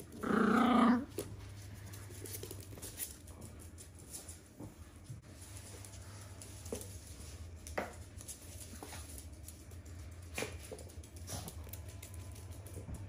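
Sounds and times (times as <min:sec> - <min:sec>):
dog claws skittering on floor: 0:00.0 - 0:04.8, 0:05.4 - 0:13.0.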